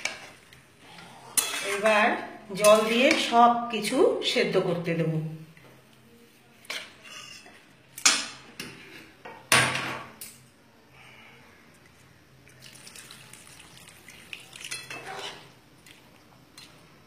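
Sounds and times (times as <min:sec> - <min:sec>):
water pouring into a pan: 0:12.4 - 0:15.0.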